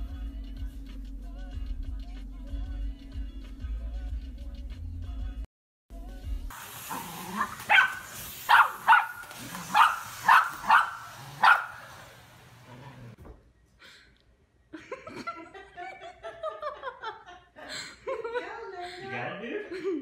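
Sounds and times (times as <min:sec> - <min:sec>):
dog barking: 0:06.9 - 0:12.1.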